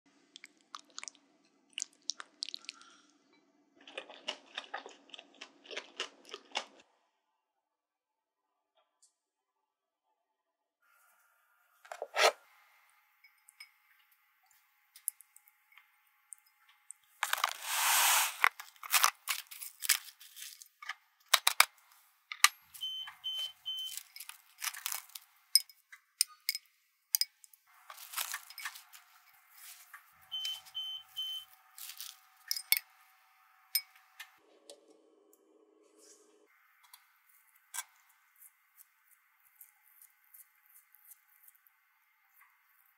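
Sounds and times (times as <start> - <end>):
cling wrap tearing: 17.2 - 20.7, 23.8 - 25.3, 27.9 - 29.9
plastic wrap crinkling: 17.2 - 20.8, 23.4 - 25.3, 27.8 - 32.5
microwave keypad beeps: 22.8 - 24.0, 30.3 - 31.5.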